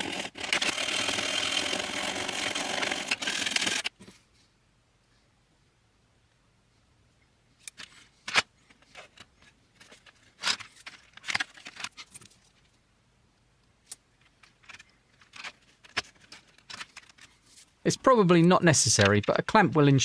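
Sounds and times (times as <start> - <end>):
plastic parts clicking and scraping: 0.0 - 4.2, 7.6 - 12.8, 13.8 - 17.7, 18.8 - 19.4.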